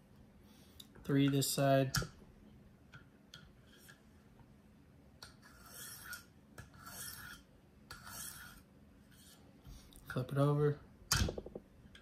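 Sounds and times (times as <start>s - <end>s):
sharpening stone strokes on knife: 5.2s - 9.4s.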